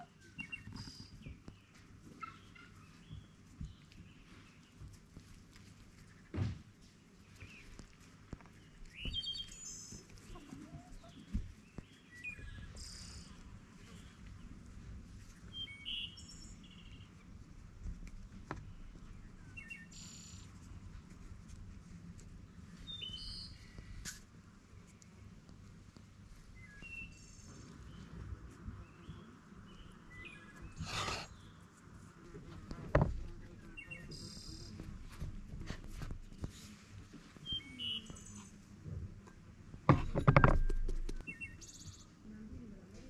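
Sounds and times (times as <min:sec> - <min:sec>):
birds chirping: 0:32.9 - 0:35.0, 0:39.9 - 0:42.1.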